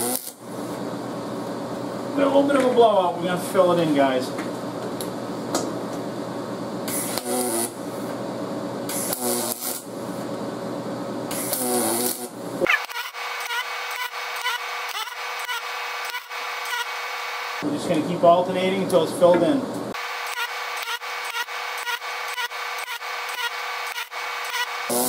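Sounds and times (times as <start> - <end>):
welder arc crackling: 0.0 - 0.5, 6.9 - 7.9, 8.9 - 10.0, 11.3 - 17.6, 19.9 - 25.0.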